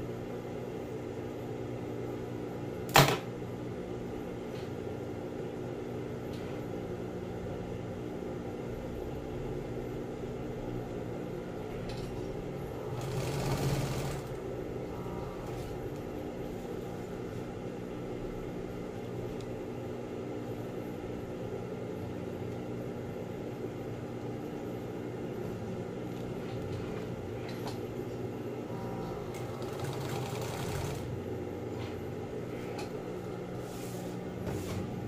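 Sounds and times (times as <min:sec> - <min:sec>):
sewing machine motor humming: 0:12.7 - 0:15.7, 0:28.7 - 0:31.2
sewing machine stitching: 0:12.8 - 0:14.4, 0:29.2 - 0:31.2.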